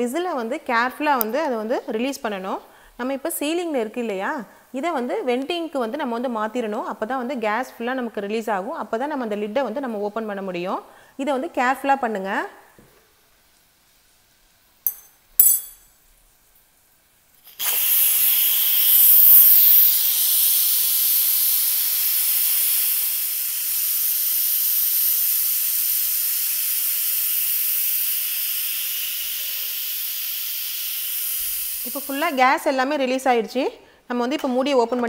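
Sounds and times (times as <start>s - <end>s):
valve clicks: 1.1s - 1.4s, 17.5s - 32.4s
steam hissing: 17.4s - 32.7s.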